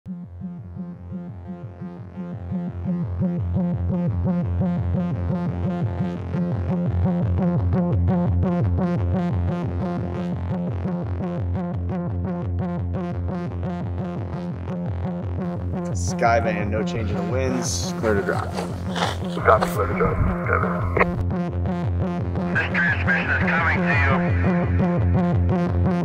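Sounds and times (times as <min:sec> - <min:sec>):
pulsing bass: 0:00.1 - 0:26.0
synthesizer chords: 0:15.8 - 0:21.2.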